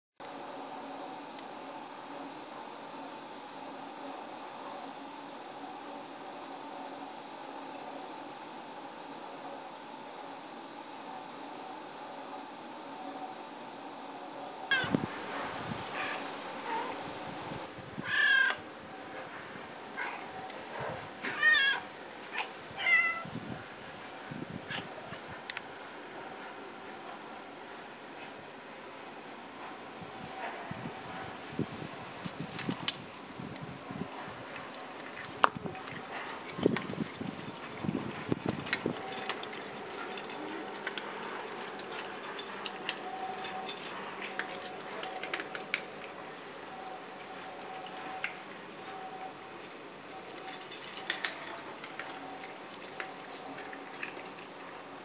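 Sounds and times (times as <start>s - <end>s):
cats meowing: 14.7s - 15.1s, 18.0s - 18.6s, 21.2s - 23.3s.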